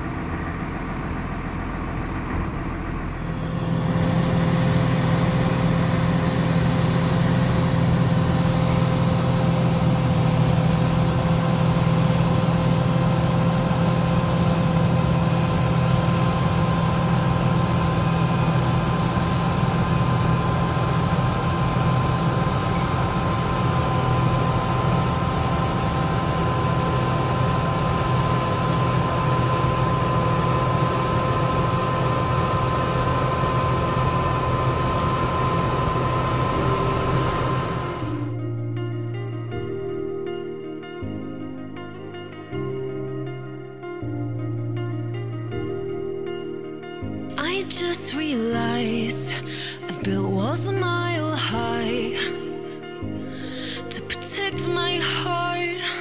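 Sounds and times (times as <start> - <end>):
large engine running: 0.0 - 38.4
thin steady whine: 3.0 - 38.4.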